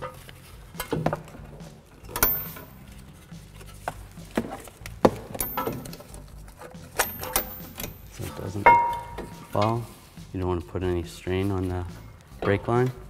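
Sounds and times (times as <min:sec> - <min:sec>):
metal hooks clicking and knocking: 0:00.0 - 0:02.9, 0:04.6 - 0:09.9.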